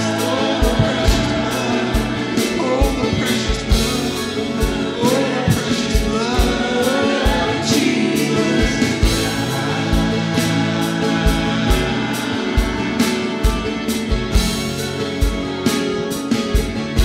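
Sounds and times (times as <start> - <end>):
voices singing in harmony: 0.0 - 15.6
acoustic guitar: 0.0 - 17.0
kick drum beat: 0.6 - 4.9.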